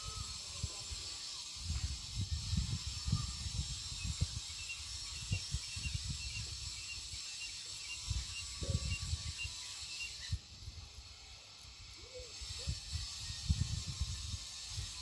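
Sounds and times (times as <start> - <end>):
steady hiss: 0.0 - 15.0
wind gusts on microphone: 1.6 - 6.8, 8.1 - 9.5, 12.3 - 15.0.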